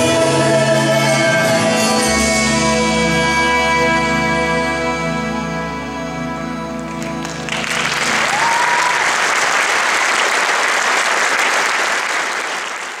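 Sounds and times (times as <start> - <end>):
audience applause: 6.9 - 13.0.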